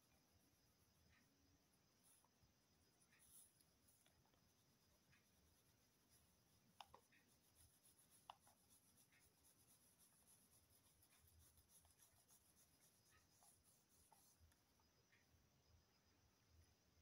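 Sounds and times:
small ticks: 0.0s - 15.4s
pencil scratching on paper: 2.0s - 14.5s.

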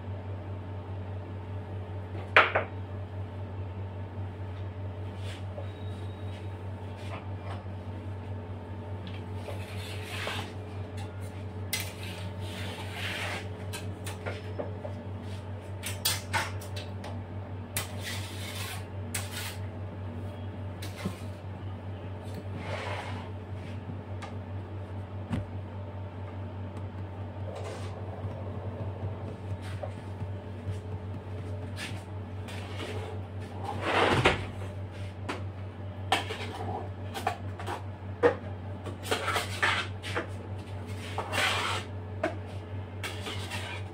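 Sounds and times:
steady low hum: 0.0s - 43.9s
scraper scraping cream: 9.4s - 10.6s, 11.8s - 13.8s, 17.8s - 19.6s, 40.9s - 41.9s, 43.0s - 43.9s.

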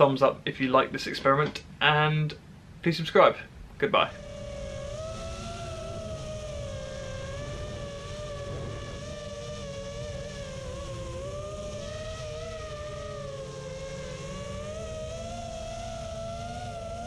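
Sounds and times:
wind rushing on microphone: 3.6s - 17.0s
drone motors whining: 3.8s - 17.0s.

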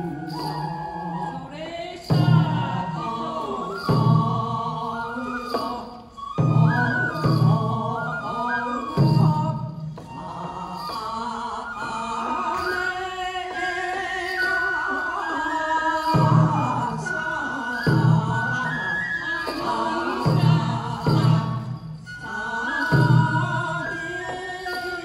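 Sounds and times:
taiko drum beats: 2.1s - 4.8s, 5.5s - 11.2s, 16.1s - 17.2s, 17.8s - 22.3s.

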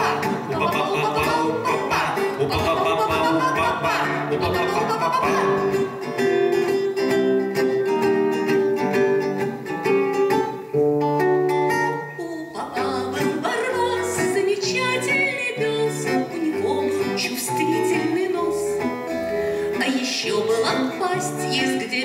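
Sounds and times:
person singing: 0.0s - 6.8s, 12.0s - 22.0s
acoustic guitar playing: 0.0s - 22.0s.

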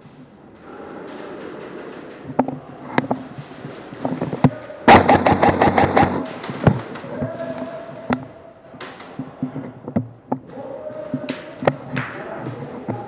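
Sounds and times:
airsoft shots cracking: 4.9s - 6.4s.

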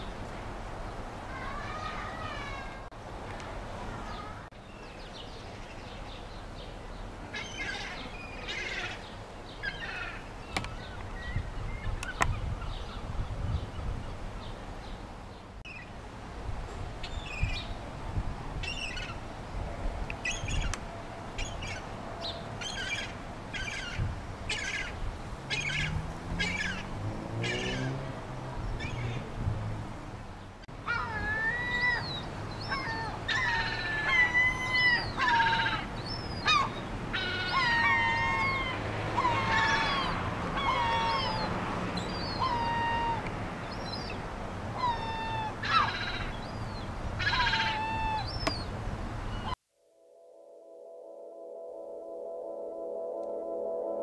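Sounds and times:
gulls calling: 7.2s - 13.0s, 20.1s - 29.3s, 30.7s - 49.6s.

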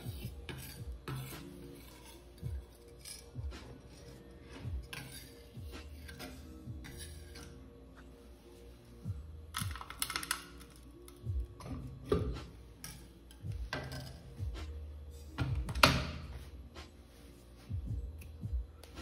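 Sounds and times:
soft background music: 0.0s - 19.0s
utensils and dishes clicking: 9.6s - 14.4s.

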